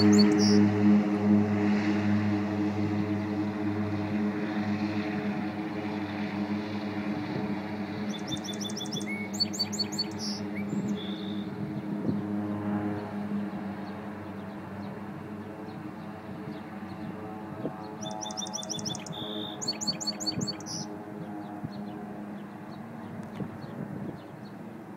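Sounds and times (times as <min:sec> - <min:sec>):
songbird singing: 0:00.0 - 0:00.6, 0:07.9 - 0:11.6, 0:17.7 - 0:24.6
propeller plane engine droning: 0:00.0 - 0:24.9.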